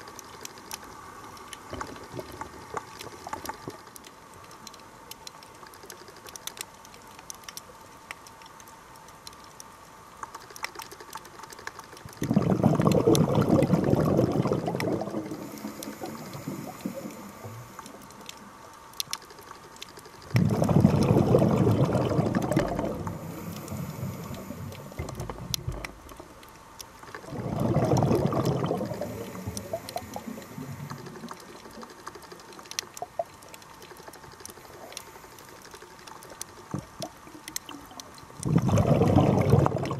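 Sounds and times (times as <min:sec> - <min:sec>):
faint clicks: 0:00.0 - 0:39.6
underwater regulator bubbles: 0:12.1 - 0:18.3, 0:20.3 - 0:26.4, 0:27.1 - 0:31.9, 0:36.6 - 0:39.9.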